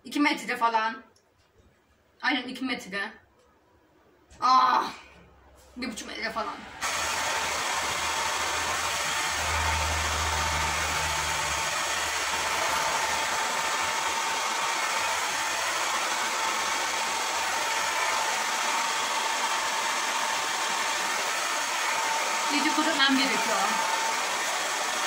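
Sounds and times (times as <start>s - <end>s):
hair dryer blowing: 6.7s - 25.0s.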